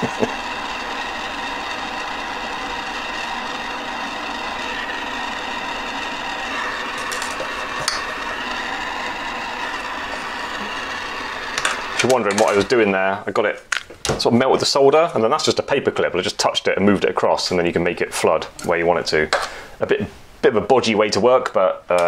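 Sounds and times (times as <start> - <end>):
gas torch hissing: 0.0 - 12.9.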